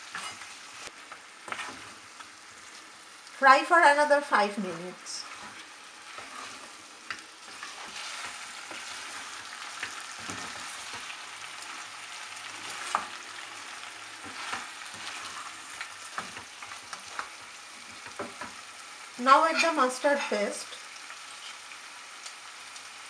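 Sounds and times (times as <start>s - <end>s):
wooden spoon scraping a pan: 0.0s - 3.0s, 4.8s - 18.7s, 21.3s - 21.7s
meat sizzling in a pot: 0.0s - 23.0s.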